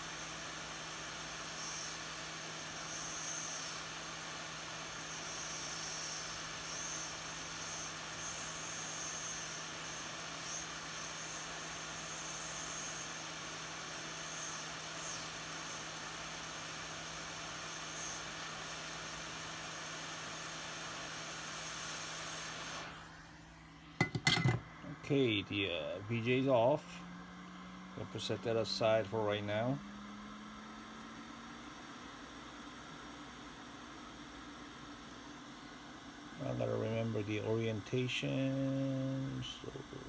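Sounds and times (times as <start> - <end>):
hot air nozzle hissing: 2.7 - 3.9.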